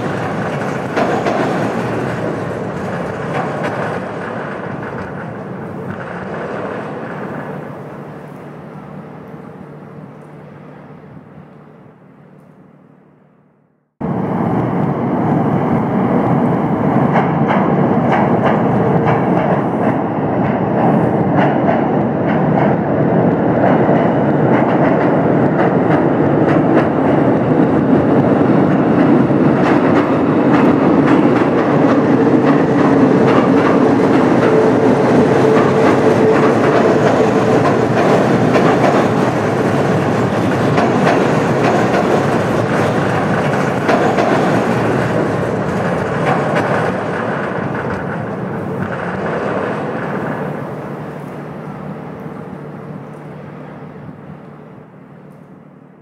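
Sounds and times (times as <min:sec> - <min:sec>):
wheels clattering over track: 0:00.0 - 0:07.9, 0:23.6 - 0:50.8
train rumbling: 0:00.0 - 0:56.0.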